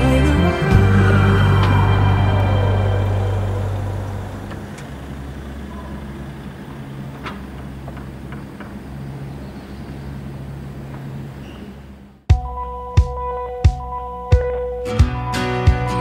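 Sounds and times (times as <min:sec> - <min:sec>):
background music: 0:00.0 - 0:04.9, 0:12.3 - 0:16.0
motor vehicle hum: 0:00.0 - 0:12.3.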